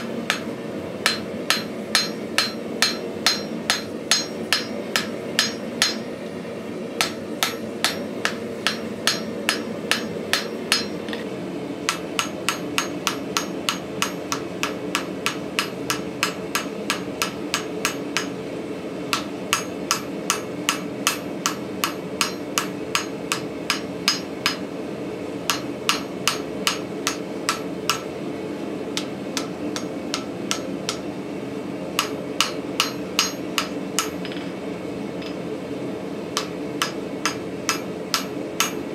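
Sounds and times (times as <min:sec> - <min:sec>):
hammer ringing on anvil: 0:00.0 - 0:06.1, 0:07.0 - 0:11.2, 0:11.9 - 0:18.4, 0:19.1 - 0:24.6, 0:25.5 - 0:28.1, 0:32.0 - 0:34.6
steady hum: 0:00.0 - 0:38.9.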